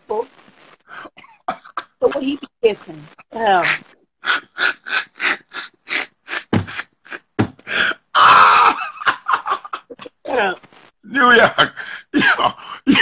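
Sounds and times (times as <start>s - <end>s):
man laughing hard: 8.2s - 10.2s.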